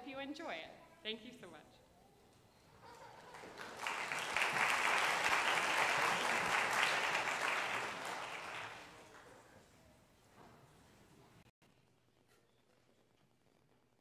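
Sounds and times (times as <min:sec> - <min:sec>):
audience applauding: 0:02.9 - 0:09.5.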